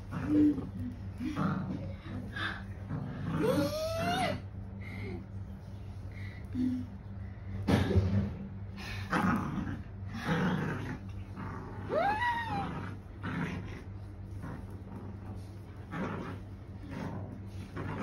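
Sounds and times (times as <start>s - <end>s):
small dog growling: 0.0s - 4.4s, 9.0s - 18.0s.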